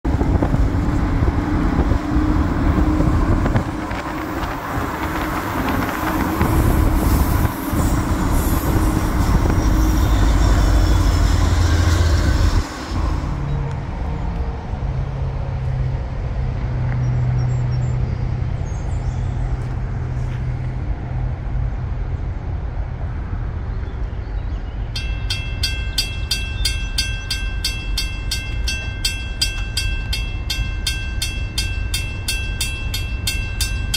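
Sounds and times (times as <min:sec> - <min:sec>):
loud low rolling rumble: 0:00.0 - 0:25.0
railroad crossing bell ringing: 0:24.9 - 0:33.9.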